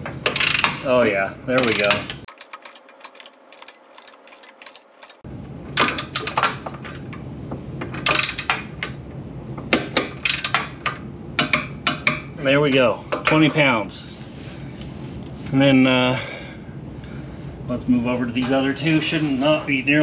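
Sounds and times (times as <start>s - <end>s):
torque wrench ratchet clicking: 0.3s - 0.7s, 1.7s - 5.2s.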